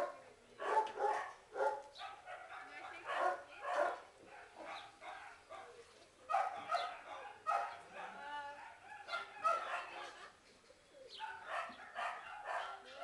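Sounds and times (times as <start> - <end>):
dogs barking and yipping: 0.0 - 10.3, 11.1 - 13.0.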